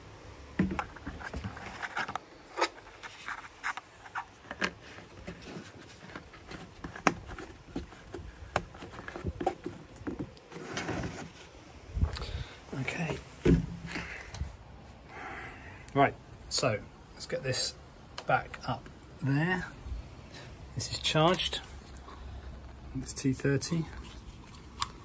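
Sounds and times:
scraping and rustling: 0:00.6 - 0:12.1.

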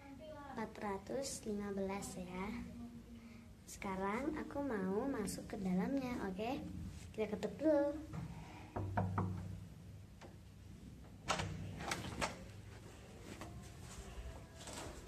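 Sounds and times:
knuckles knocking on wooden door: 0:08.8 - 0:09.5.

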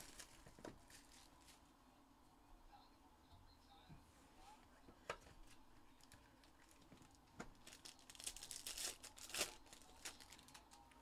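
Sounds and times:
foil wrapper tearing and crinkling: 0:00.0 - 0:01.3, 0:07.5 - 0:10.9.

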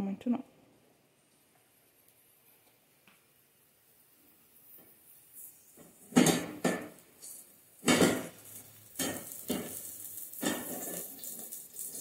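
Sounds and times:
pot clattering on stove grate: 0:05.8 - 0:12.0.

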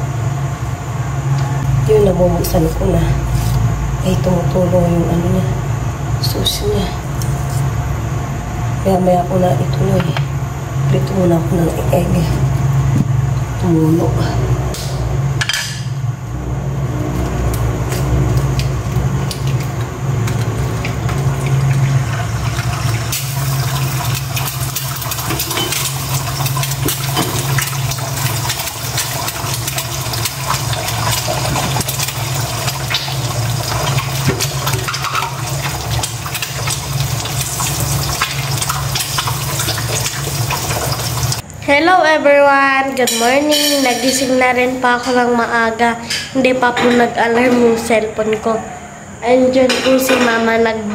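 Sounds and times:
egg sizzling in oil: 0:19.3 - 0:41.4.

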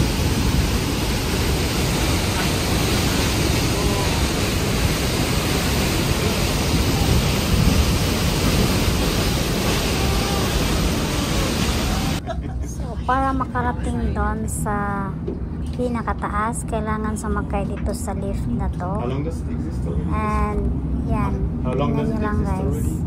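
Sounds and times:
waterfall rushing: 0:00.0 - 0:12.2.

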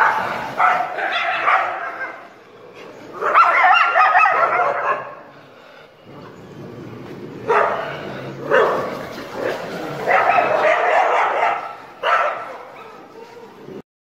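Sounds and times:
dogs barking: 0:00.0 - 0:02.4, 0:03.0 - 0:05.3, 0:07.4 - 0:13.6.

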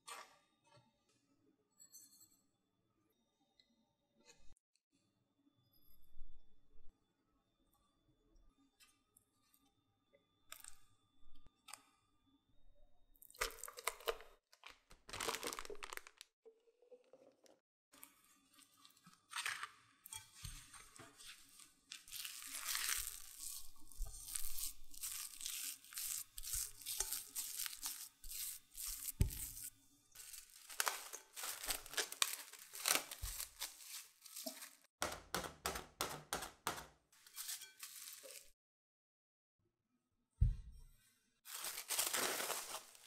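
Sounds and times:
spatula scraping dough in glass bowl: 0:19.3 - 0:29.7, 0:37.2 - 0:38.5.

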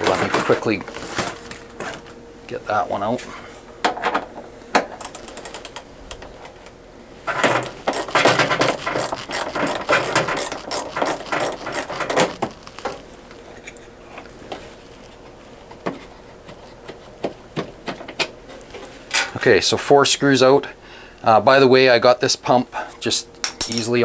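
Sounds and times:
hand ratchet clicking: 0:07.5 - 0:12.6.

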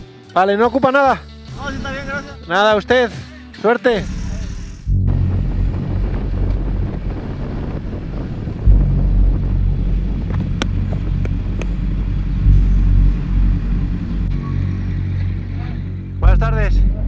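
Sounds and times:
motorcycle engine and wind rumble: 0:05.1 - 0:13.3.

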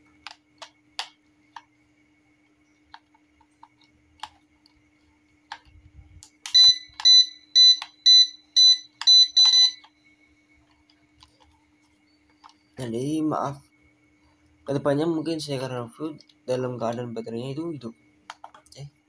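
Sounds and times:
short high beeps: 0:06.6 - 0:09.9.

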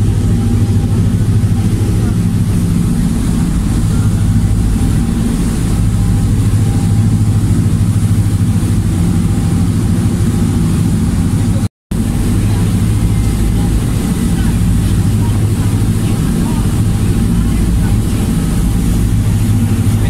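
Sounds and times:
ferry engines humming: 0:00.0 - 0:20.0.

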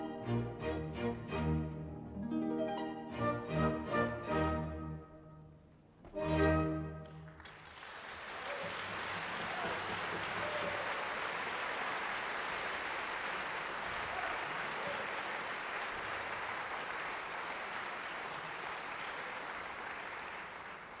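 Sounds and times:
audience applauding: 0:07.0 - 0:21.0.

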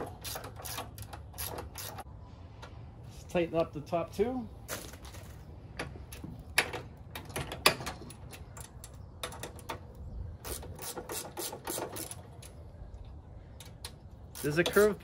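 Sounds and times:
ratchet wrench clicking: 0:13.6 - 0:15.0.

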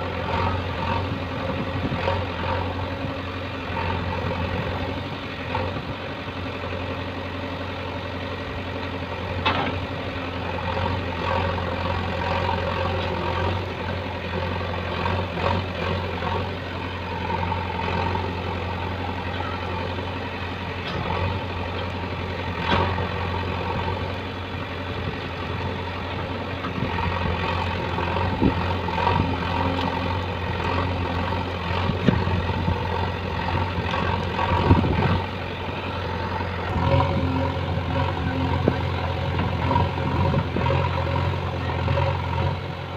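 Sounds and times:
diesel engine running: 0:00.0 - 0:42.9
backhoe digging soil: 0:08.0 - 0:42.9.

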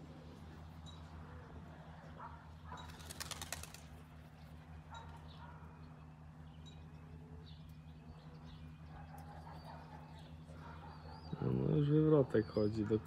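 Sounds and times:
pigeon wings flapping: 0:02.8 - 0:04.1.

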